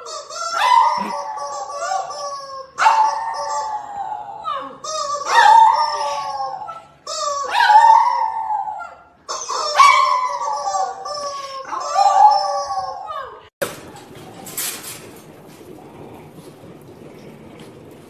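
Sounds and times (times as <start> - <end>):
dog howling: 0.0 - 14.4.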